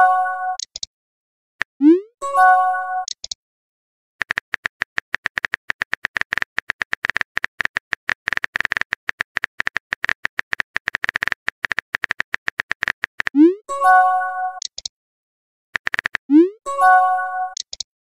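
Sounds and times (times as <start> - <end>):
phone keyboard typing clicks: 3.0 - 3.4, 4.2 - 13.4, 14.6 - 14.9, 15.8 - 16.3, 17.5 - 17.9.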